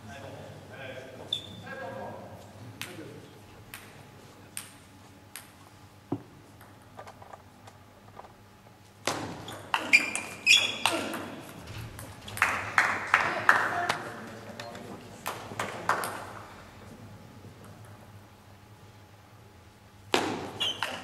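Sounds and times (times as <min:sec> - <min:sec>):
table tennis rally: 0:02.6 - 0:07.4, 0:09.0 - 0:18.2, 0:20.1 - 0:21.0.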